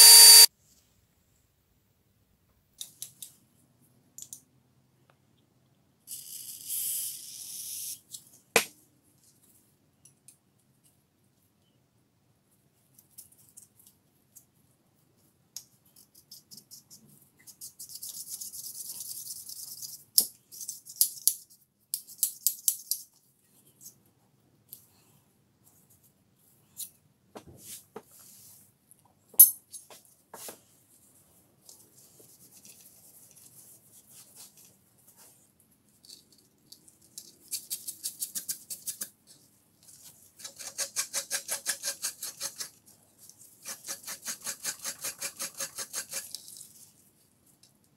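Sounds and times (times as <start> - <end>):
metal parts clicking and tapping: 29.4 - 29.9.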